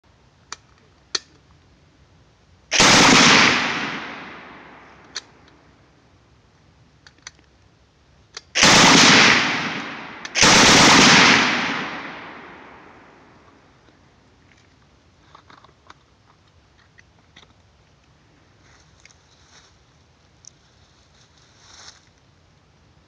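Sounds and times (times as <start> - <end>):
gunshot echo: 2.7 - 5.1, 8.6 - 13.4
automatic rifle bursts: 2.7 - 5.3, 8.6 - 13.3.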